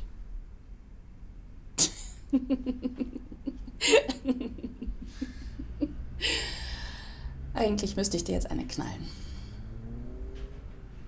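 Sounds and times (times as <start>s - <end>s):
man laughing in breathy chuckles: 2.1s - 6.4s.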